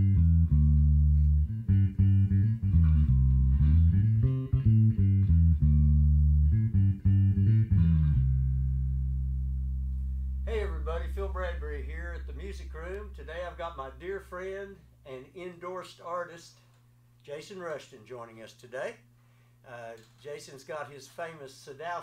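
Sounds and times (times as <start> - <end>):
plucked electric bass notes: 0.0 - 14.8.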